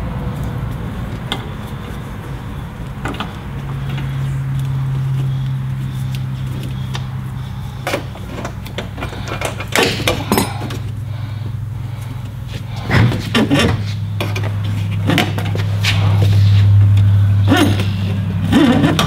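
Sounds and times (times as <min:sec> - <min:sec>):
steady low drone: 0:00.0 - 0:19.0
metallic clinks and knocks: 0:07.8 - 0:11.0.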